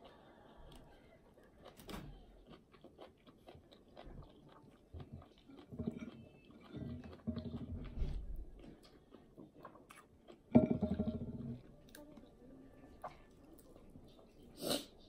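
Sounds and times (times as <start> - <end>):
person chewing and lip-smacking: 0.0 - 10.5.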